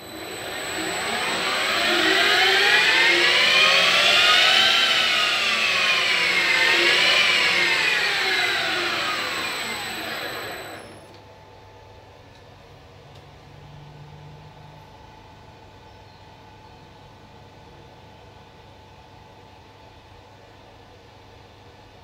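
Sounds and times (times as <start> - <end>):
steady high-pitched tone: 0.0 - 11.1
spindle motor whining: 0.0 - 11.2.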